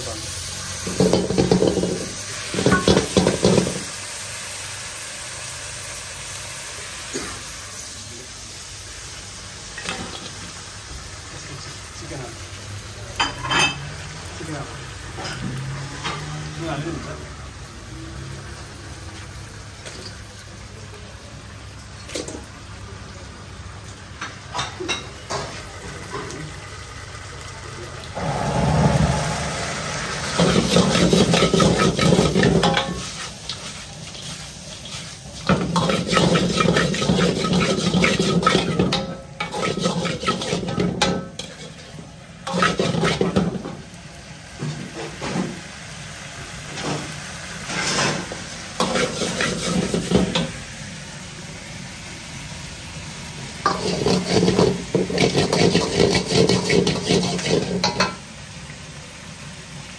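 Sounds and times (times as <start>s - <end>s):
water running hard: 0.0s - 3.9s, 30.2s - 41.2s
pans and utensils clattering: 0.8s - 3.9s, 13.1s - 14.0s, 15.2s - 16.3s, 24.2s - 26.4s, 30.3s - 43.8s, 44.6s - 45.6s, 46.7s - 50.6s, 53.6s - 58.2s.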